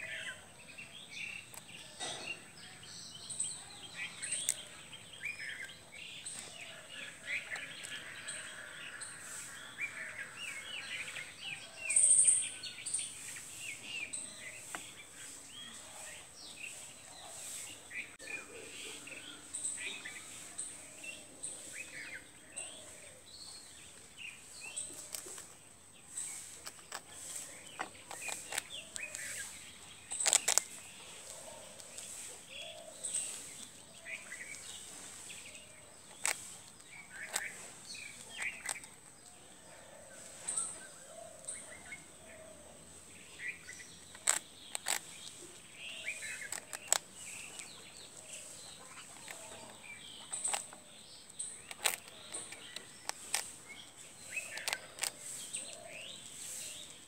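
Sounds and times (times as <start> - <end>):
birds chirping: 0.0 - 57.0
squirrel crunching toast: 24.6 - 39.6, 44.0 - 56.0.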